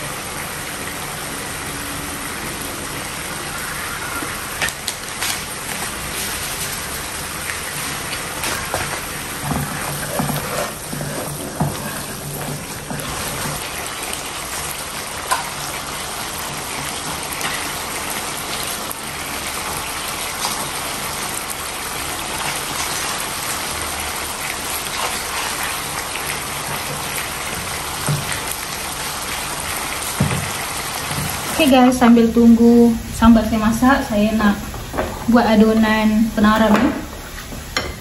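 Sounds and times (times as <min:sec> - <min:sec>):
chili paste sizzling in pan: 0:00.0 - 0:38.0
wooden spatula stirring: 0:07.8 - 0:14.2.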